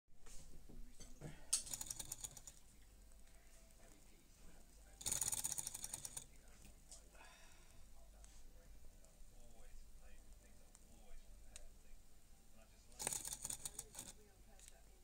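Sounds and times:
toy engine rattling clicks: 1.6 - 2.6, 5.0 - 6.3, 13.0 - 14.2.

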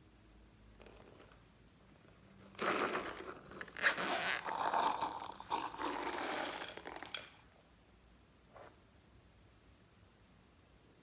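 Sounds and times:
zipper pulled open: 2.4 - 7.1
plastic beads rattling: 2.6 - 7.4.

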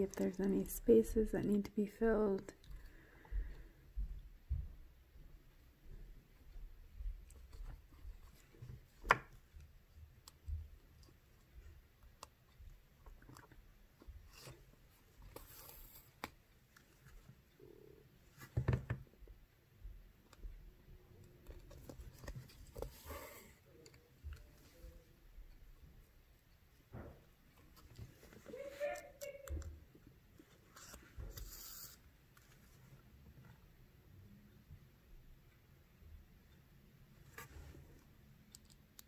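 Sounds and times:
beads and needle clicking: 38.4 - 39.0.

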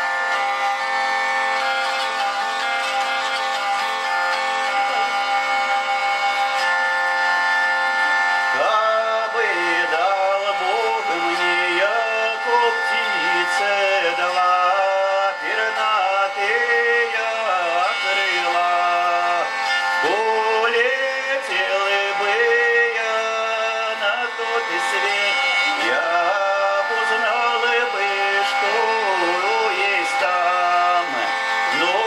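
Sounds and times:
hurdy-gurdy drone: 0.0 - 32.0
man singing: 8.5 - 32.0.

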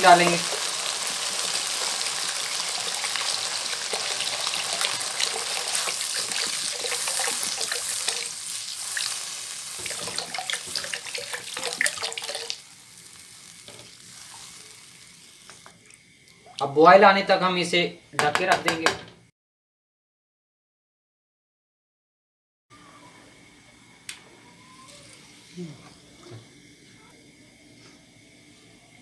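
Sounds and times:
water pouring into a wok: 0.2 - 13.5
spatula stirring food: 0.4 - 12.6.

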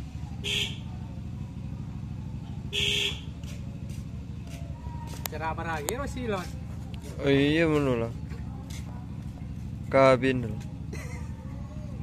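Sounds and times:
low engine rumble: 0.0 - 12.0
vehicle horn toots: 0.4 - 0.9, 2.7 - 3.3.

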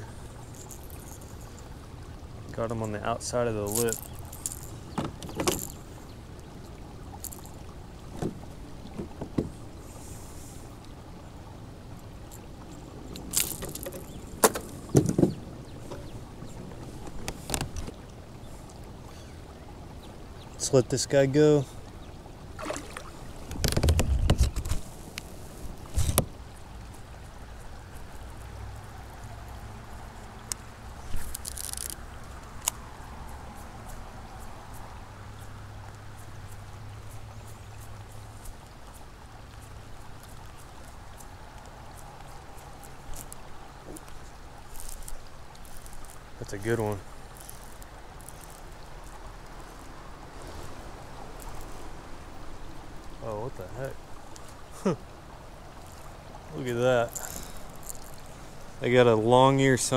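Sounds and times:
low background hiss: 0.0 - 23.6, 24.5 - 59.9
water trickling and dripping: 0.0 - 59.9
splash and knock: 22.6 - 24.8
reel click: 31.2 - 32.0.

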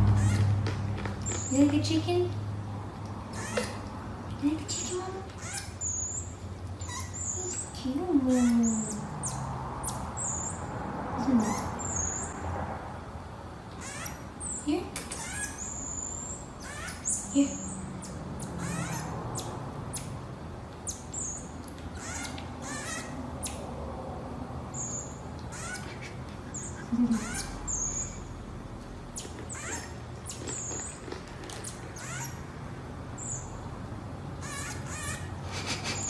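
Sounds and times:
marmoset high-pitched chirps: 1.2 - 2.0, 3.3 - 3.8, 4.8 - 10.7, 11.4 - 12.4, 13.8 - 20.2, 20.8 - 23.7, 24.7 - 28.3, 29.2 - 32.4, 33.2 - 33.5, 34.4 - 35.4.

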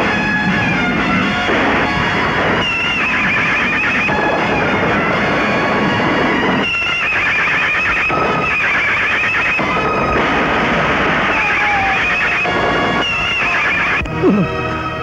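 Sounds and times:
continuous noisy din: 0.0 - 15.0
horses whinnying: 11.1 - 12.6, 14.1 - 14.6.

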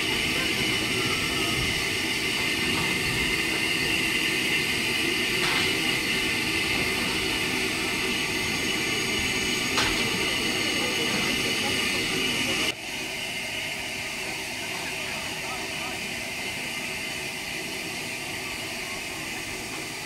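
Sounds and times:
steam hissing: 0.0 - 20.0.

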